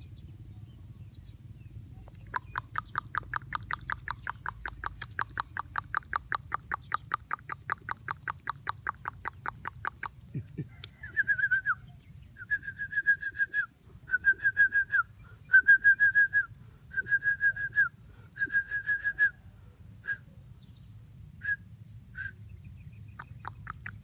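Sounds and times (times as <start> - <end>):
person whistling to call a dog: 11.0 - 19.4, 20.0 - 20.3, 22.2 - 22.4.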